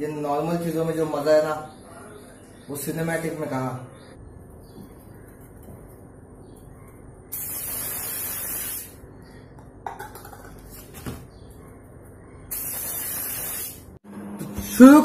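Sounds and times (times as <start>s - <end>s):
spray bottle hissing: 7.3s - 9.0s, 12.5s - 13.9s.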